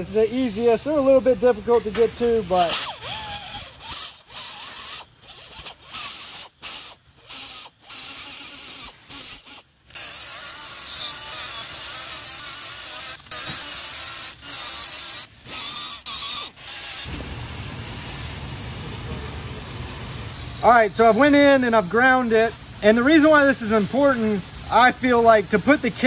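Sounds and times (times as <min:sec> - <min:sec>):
die grinder grinding metal: 0:02.2 - 0:21.2.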